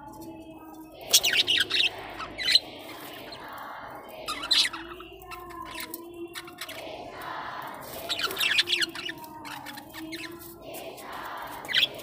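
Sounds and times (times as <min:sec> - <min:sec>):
budgerigars chirping and squawking: 0:01.1 - 0:03.4, 0:04.2 - 0:07.0, 0:07.9 - 0:10.4, 0:11.6 - 0:12.0
rapid shrill bird calls: 0:01.1 - 0:03.5, 0:04.2 - 0:07.0, 0:08.0 - 0:10.5, 0:11.6 - 0:12.0.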